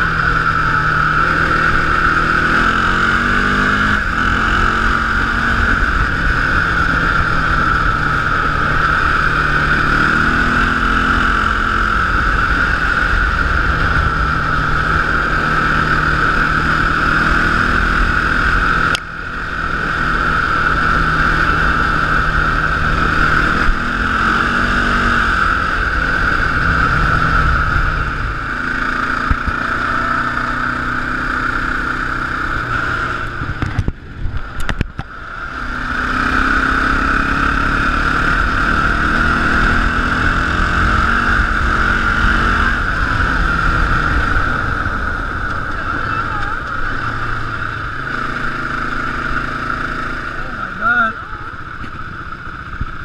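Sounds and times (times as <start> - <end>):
quad engine revving: 0.0 - 53.0
wind rush: 37.0 - 48.1.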